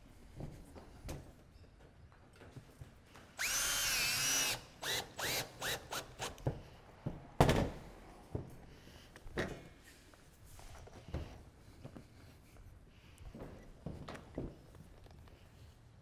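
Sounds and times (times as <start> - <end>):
cordless drill driving screw: 3.4 - 6.4.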